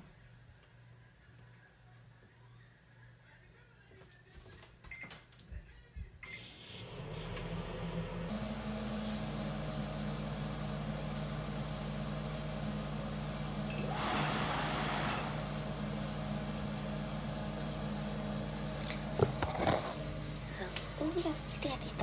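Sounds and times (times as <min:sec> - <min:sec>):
microwave oven humming: 0:06.3 - 0:22.0.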